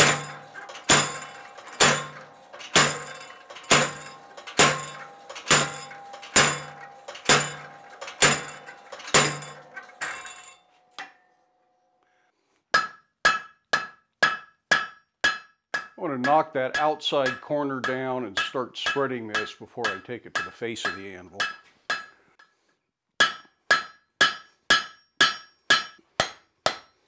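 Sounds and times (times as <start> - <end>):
hammer striking iron on anvil: 0.0 - 11.2, 12.7 - 22.4, 23.2 - 27.0
metallic ring: 0.0 - 11.5.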